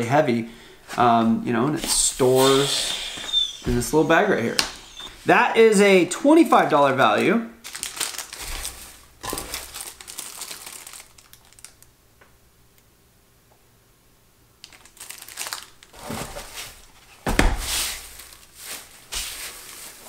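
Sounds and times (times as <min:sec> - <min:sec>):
hand rustling shredded paper: 0:07.6 - 0:11.8, 0:14.7 - 0:16.8, 0:17.6 - 0:20.0
plastic bag crinkling: 0:07.6 - 0:11.9, 0:14.6 - 0:17.2, 0:17.8 - 0:20.0.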